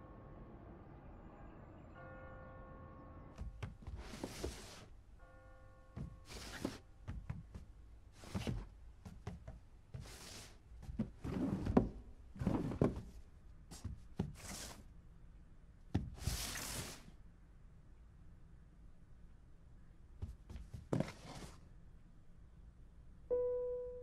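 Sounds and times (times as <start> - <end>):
box scraping along floor: 3.9 - 4.9, 6.2 - 6.8, 10.0 - 10.6, 16.2 - 17.1, 20.9 - 21.6.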